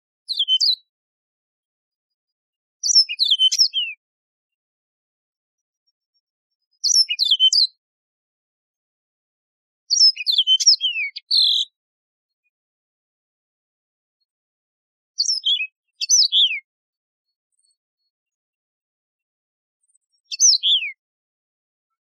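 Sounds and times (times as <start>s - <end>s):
canary singing: 0.3s - 0.9s, 2.8s - 4.0s, 6.8s - 7.8s, 9.9s - 11.8s, 15.2s - 16.7s, 20.3s - 21.0s.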